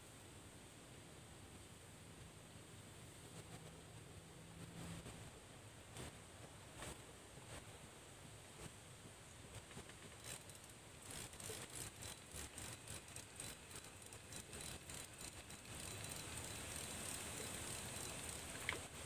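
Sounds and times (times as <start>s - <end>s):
faint high hiss: 0.0s - 19.0s
fishing reel clicking and whirring: 9.8s - 19.0s.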